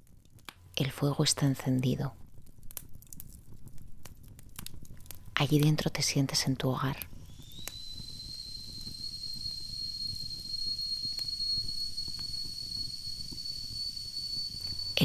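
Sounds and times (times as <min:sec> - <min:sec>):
log fire crackling: 0:00.0 - 0:15.0
kettle whistling: 0:06.8 - 0:15.0.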